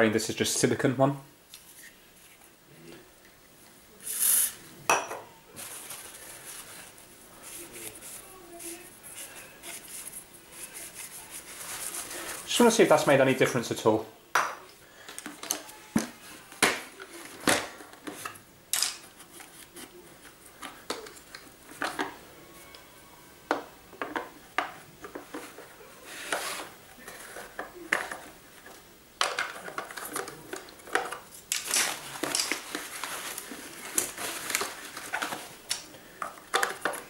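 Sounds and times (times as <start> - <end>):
plastic clicks and clatter: 27.2 - 37.0.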